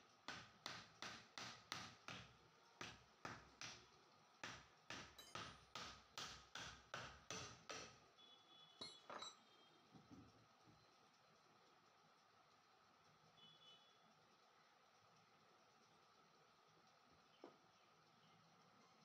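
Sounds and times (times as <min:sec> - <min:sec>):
hammer knocking on metal housing: 0:04.4 - 0:08.0.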